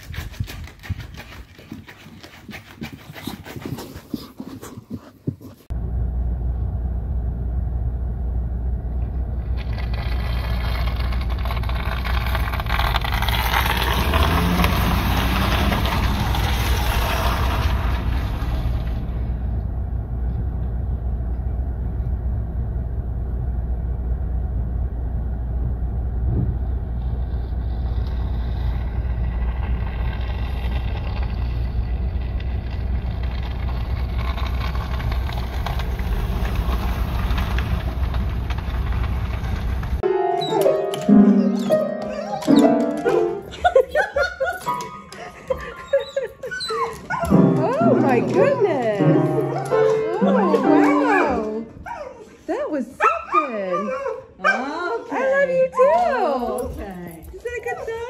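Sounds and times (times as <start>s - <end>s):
vehicle idling rumble: 5.7s - 40.0s.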